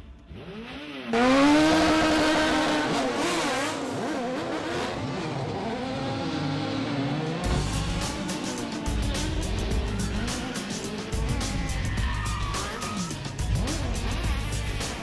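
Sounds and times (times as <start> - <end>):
car engine revving: 0.1 - 15.0
tyre squeal: 11.7 - 13.3.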